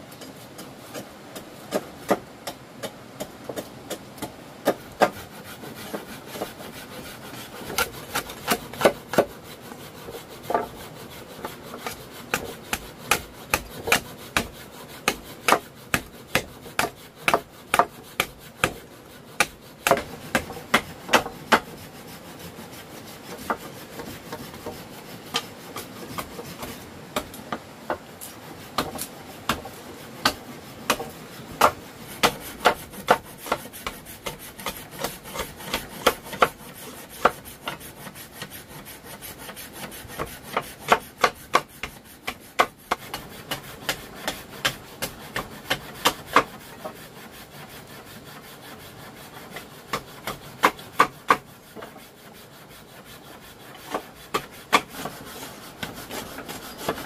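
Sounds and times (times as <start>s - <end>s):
wood scraping and rasping: 0.0s - 57.0s
hand tool knocking wood: 11.8s - 18.8s, 19.4s - 21.7s, 28.8s - 36.6s, 40.1s - 46.5s.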